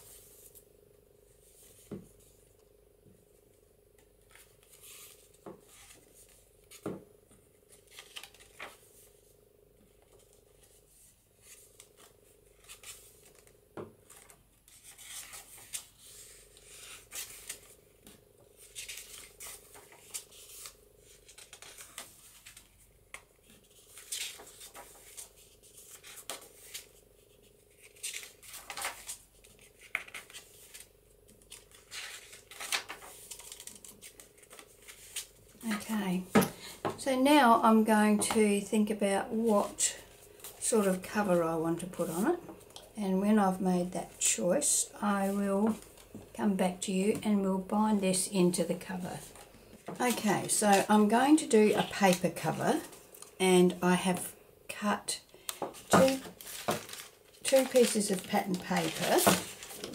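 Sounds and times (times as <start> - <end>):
faint steady hum: 0.0 - 59.9
paper rustling and scraping: 4.2 - 6.9, 9.9 - 17.8, 18.6 - 35.6, 55.5 - 59.9.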